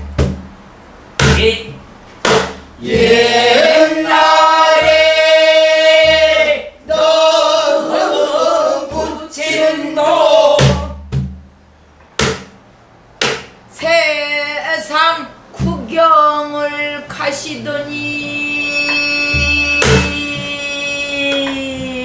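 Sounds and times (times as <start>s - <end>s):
barrel drum strokes: 1.2s - 6.6s
group singing held phrase: 2.8s - 11.0s.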